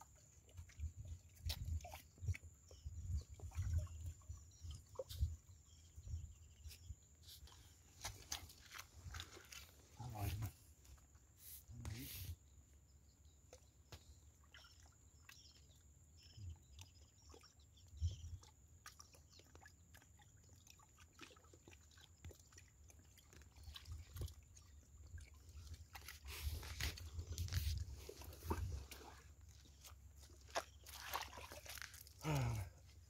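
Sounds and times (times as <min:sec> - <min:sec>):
hands digging in wet mud: 0:25.6 - 0:32.7.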